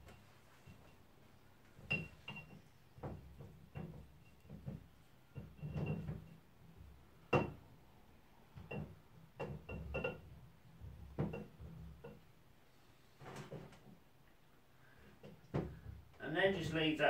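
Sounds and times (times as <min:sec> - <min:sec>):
brushes knocking against glass jar: 0:08.6 - 0:10.2.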